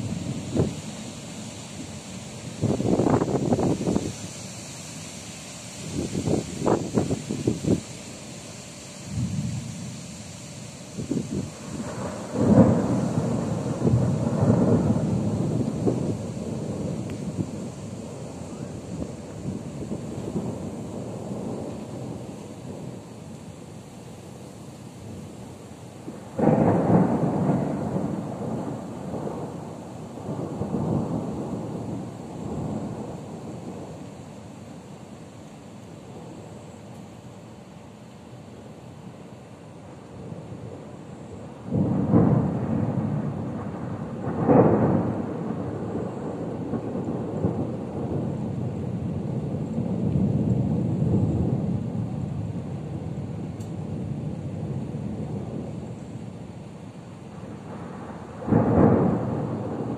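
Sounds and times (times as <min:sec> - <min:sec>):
thunder clap and rumbling: 0:02.5 - 0:04.1, 0:11.0 - 0:23.0, 0:26.1 - 0:34.0, 0:41.6 - 0:56.0, 0:57.4 - 0:59.9.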